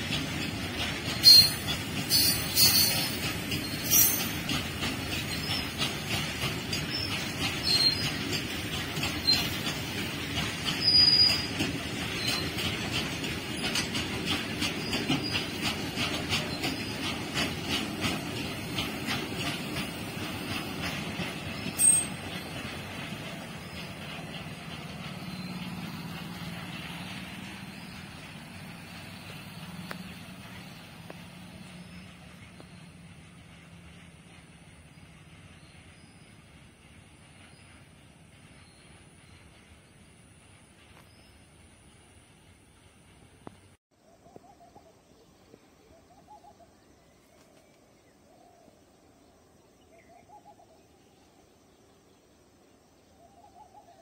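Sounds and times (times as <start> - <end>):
train wheels clacking over rail joints: 0.0 - 43.8
high wheel squeal: 0.4 - 4.5, 6.7 - 8.5, 10.6 - 12.7, 21.6 - 22.7.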